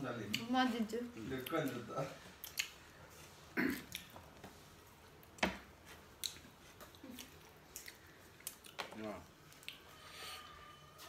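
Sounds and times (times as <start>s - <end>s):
mouth clicks and smacks: 2.4s - 2.8s, 3.7s - 4.2s, 6.1s - 9.8s.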